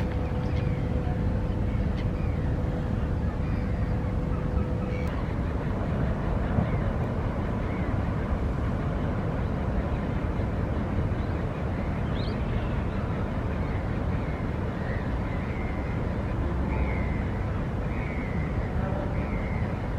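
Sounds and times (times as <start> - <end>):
steady low rumble: 0.0 - 19.9
faint bird calls: 9.4 - 19.9.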